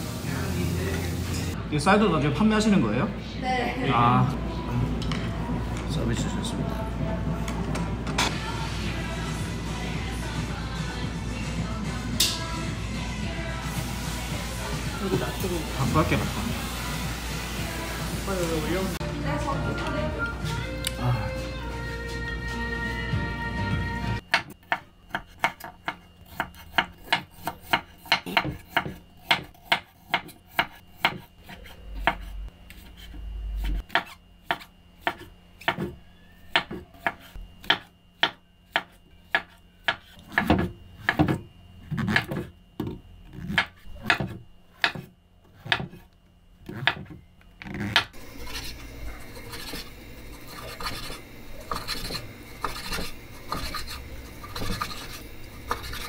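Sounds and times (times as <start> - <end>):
knife chopping on cutting board: 24.3 - 41.4, 42.0 - 46.1, 47.9 - 56.0
scraping rasping noise: 47.7 - 56.0.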